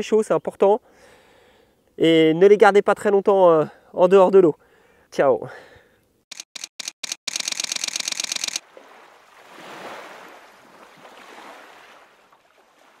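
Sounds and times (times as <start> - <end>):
camera shutter burst: 6.3 - 8.6.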